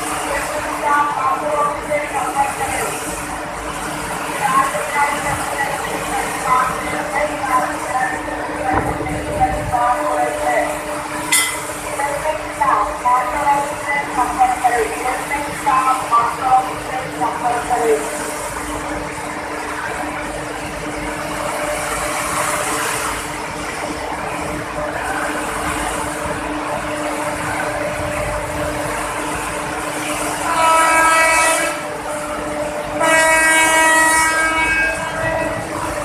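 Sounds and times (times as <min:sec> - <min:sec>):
train running noise: 0:00.0 - 0:36.0
train air horn blasts: 0:30.3 - 0:32.0, 0:32.8 - 0:35.7.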